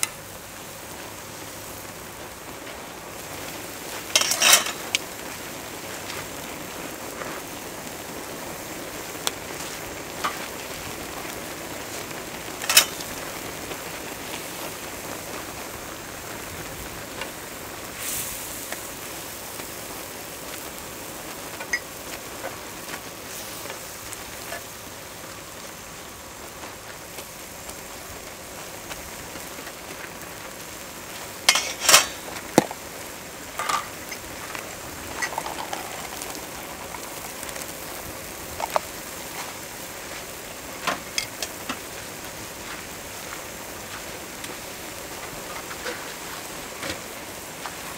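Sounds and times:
broth boiling hard: 0.0s - 47.9s.

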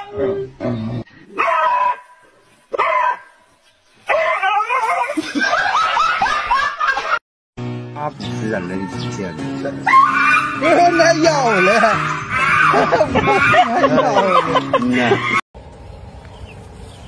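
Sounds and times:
small dog barking and yelping: 1.4s - 3.3s, 4.1s - 5.1s, 9.9s - 14.6s.

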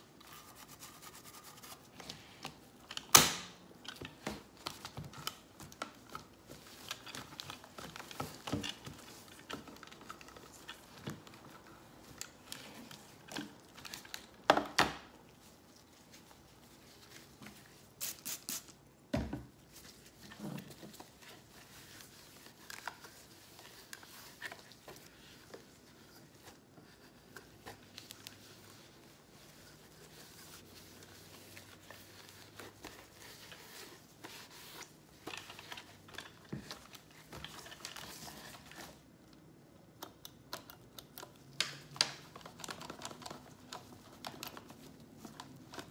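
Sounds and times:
cloth rustling: 19.6s - 39.2s.

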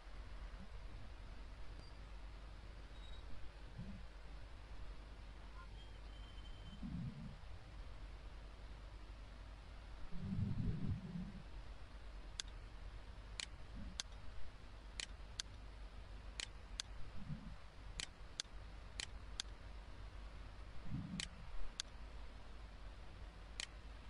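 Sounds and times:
steady low hum: 0.0s - 24.0s
computer mouse clicks: 12.4s - 12.6s.

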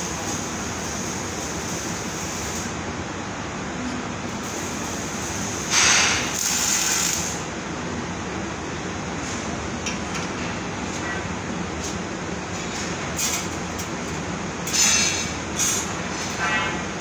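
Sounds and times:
welding hissing crackle: 0.0s - 2.8s, 4.3s - 7.5s, 11.7s - 16.6s
workshop drone: 0.0s - 17.0s.

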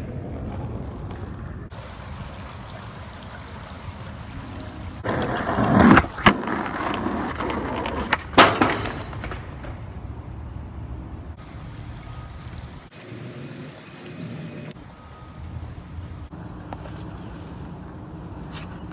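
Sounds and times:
skateboard wheels rolling on asphalt: 0.0s - 2.6s, 3.5s - 12.3s, 16.0s - 18.9s
skateboard clacks: 5.0s - 10.1s.

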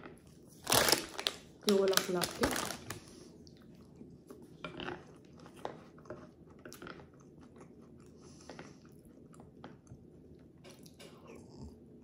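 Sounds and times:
person chewing food: 2.9s - 12.0s.

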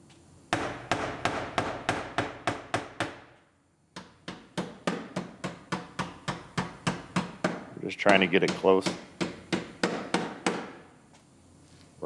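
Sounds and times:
hammer on sheet metal: 0.5s - 3.2s, 4.0s - 10.8s.

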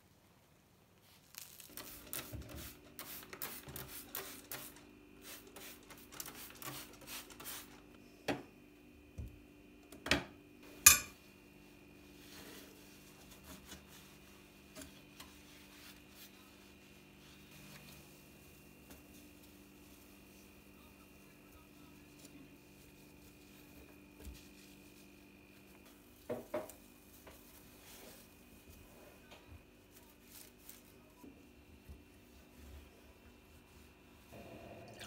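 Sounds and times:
dishes and cutlery clinking: 10.8s - 11.2s.

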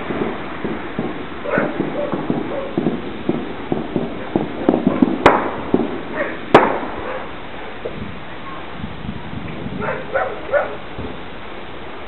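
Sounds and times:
loud sharp bangs: 0.0s - 8.0s
gunshot pops: 0.1s - 7.2s
dog barking: 1.4s - 2.8s, 6.1s - 6.4s, 7.0s - 7.3s, 9.8s - 10.9s.

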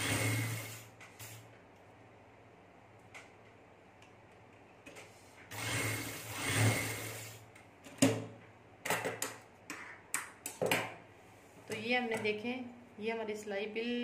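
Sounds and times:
sewing machine stitching: 0.0s - 0.8s, 5.5s - 7.3s.

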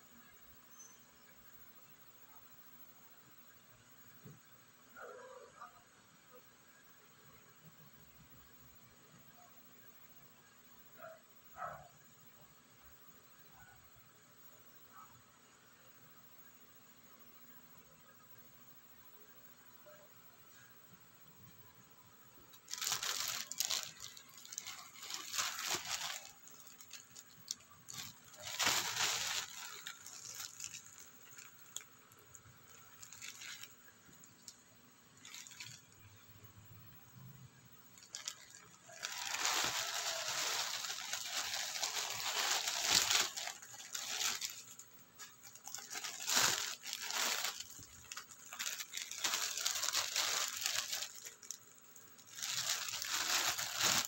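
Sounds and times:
plastic packaging crinkling: 22.5s - 34.6s, 35.2s - 36.3s, 37.9s - 54.0s.

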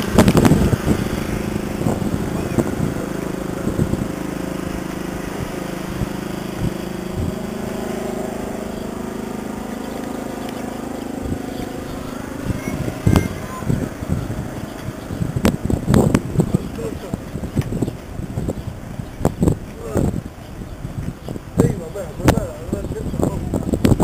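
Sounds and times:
truck engine idling: 0.0s - 18.2s.

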